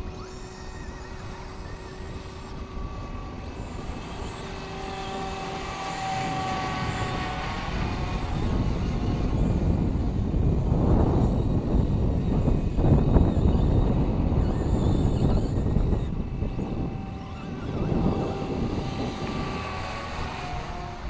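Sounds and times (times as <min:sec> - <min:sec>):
rc helicopter whine: 0:00.0 - 0:21.0.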